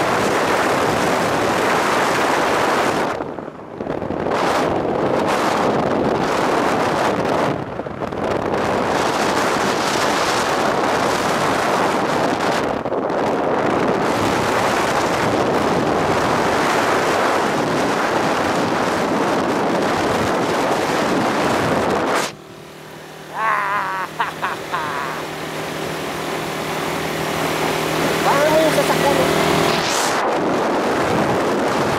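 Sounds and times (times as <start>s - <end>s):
wind rushing over microphone: 0.0s - 31.9s.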